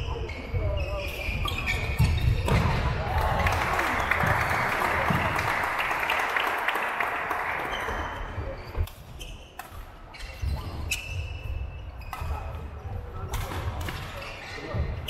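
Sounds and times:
shoes squeaking: 0:00.0 - 0:02.6, 0:07.8 - 0:15.0.

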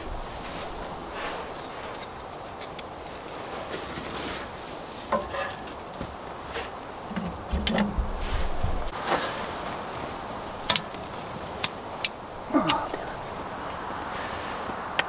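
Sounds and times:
wood knocking and rustling: 0:05.1 - 0:09.3.

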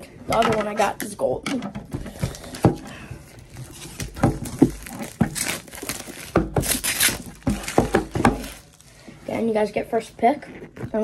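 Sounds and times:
plastic wrapping crinkling: 0:02.1 - 0:09.1
cardboard knocks and taps: 0:07.4 - 0:08.6.

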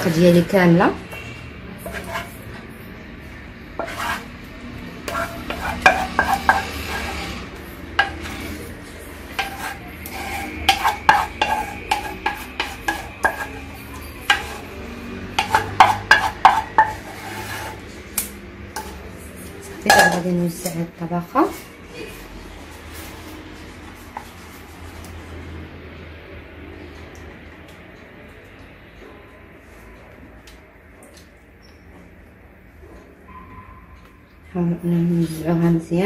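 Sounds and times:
spatula scraping a saucepan: 0:01.8 - 0:02.5, 0:03.8 - 0:04.4, 0:05.0 - 0:18.0, 0:18.8 - 0:19.1, 0:19.7 - 0:20.2.

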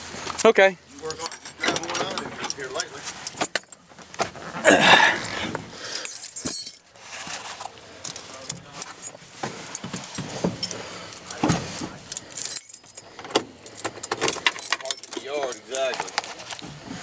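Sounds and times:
rustling handling noise: 0:00.0 - 0:17.0
keys jangling: 0:00.9 - 0:03.8, 0:05.2 - 0:06.9, 0:08.1 - 0:16.6.

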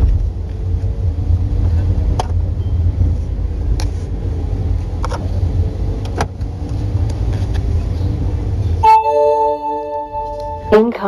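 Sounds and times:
car engine and tyre rumble: 0:00.0 - 0:08.8.

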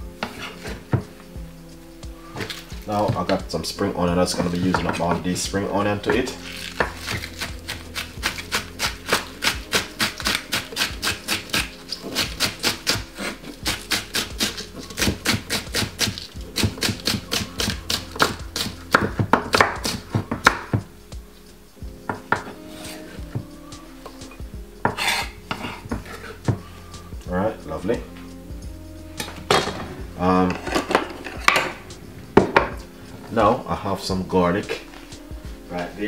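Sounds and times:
knife chopping on wooden board: 0:06.2 - 0:20.9, 0:24.8 - 0:26.6.

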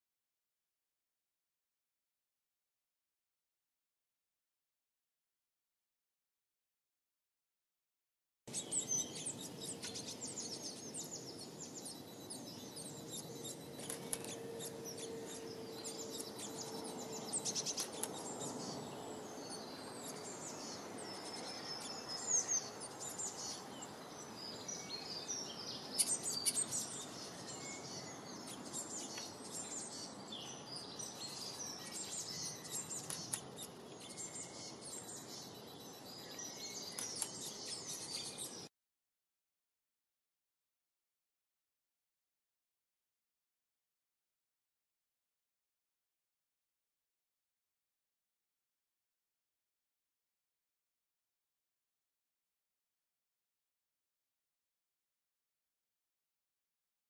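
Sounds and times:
songbirds chirping and singing: 0:08.5 - 0:38.7.

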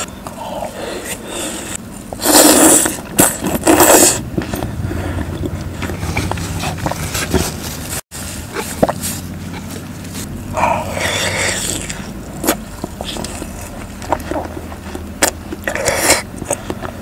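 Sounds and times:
watermelon crunching: 0:00.0 - 0:17.0
chewing: 0:08.5 - 0:17.0.

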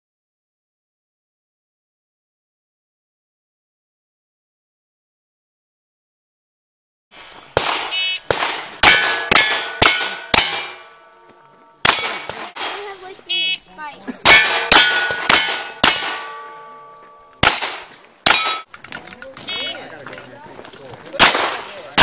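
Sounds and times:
pistol shots: 0:07.5 - 0:11.0, 0:11.8 - 0:13.0, 0:14.2 - 0:16.8, 0:17.4 - 0:18.7, 0:21.1 - 0:22.0
steel target plate ringing: 0:07.6 - 0:11.2, 0:11.8 - 0:12.9, 0:14.2 - 0:18.7.

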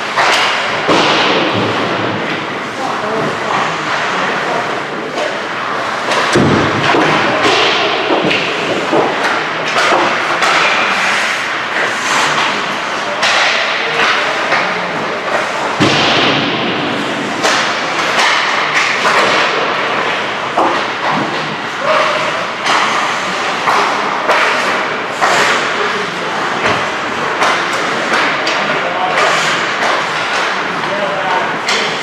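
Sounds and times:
sticks and puck clacking: 0:00.0 - 0:32.0
skate blades scraping ice: 0:08.3 - 0:13.0.

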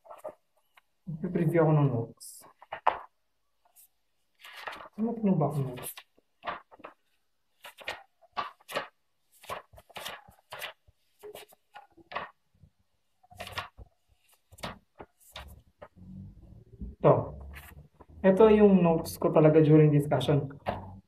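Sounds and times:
notebook pages flipping: 0:00.0 - 0:01.0, 0:02.5 - 0:16.3, 0:17.3 - 0:18.2.

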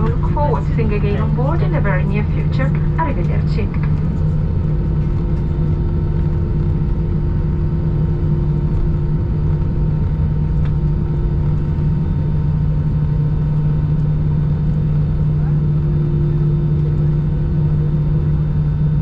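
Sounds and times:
aircraft cabin engine hum: 0:00.0 - 0:19.0.

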